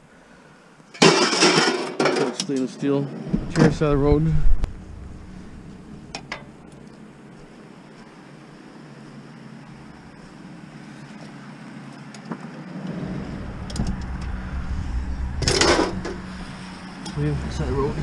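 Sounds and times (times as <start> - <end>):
low rumble: 3.3 - 6.8, 12.8 - 18.0
sliding door running along track: 12.7 - 18.0.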